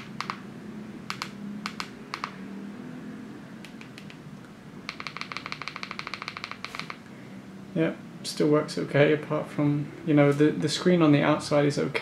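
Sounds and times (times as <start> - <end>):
phone keypad buttons clicking: 0.0 - 0.4, 1.1 - 2.4, 3.6 - 4.2, 4.9 - 7.0.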